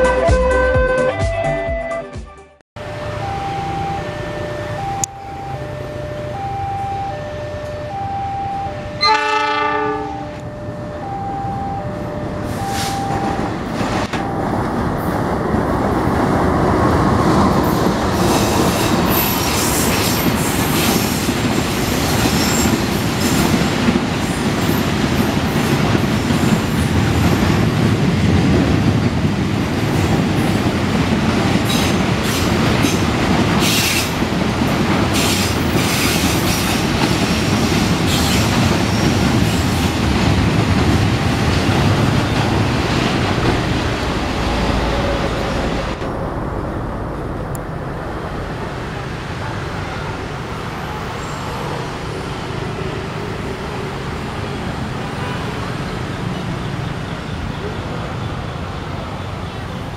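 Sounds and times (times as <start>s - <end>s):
diesel locomotive horn: 0.0s - 2.2s, 7.6s - 13.2s, 55.0s - 55.8s
level crossing two-tone warning signal: 2.8s - 16.3s.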